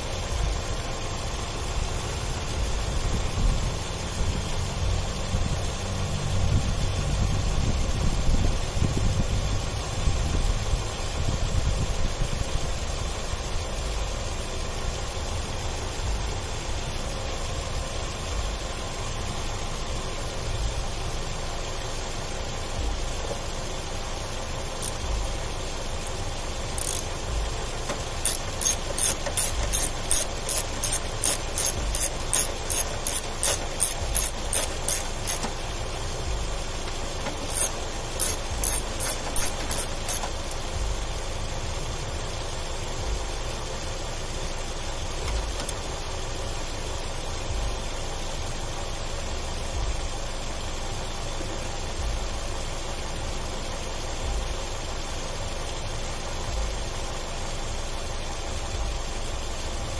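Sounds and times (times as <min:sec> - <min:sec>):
car engine idling: 0:00.0 - 0:59.9
sharp rapid clicks: 0:24.8 - 0:25.0, 0:26.0 - 0:35.7, 0:36.8 - 0:40.6.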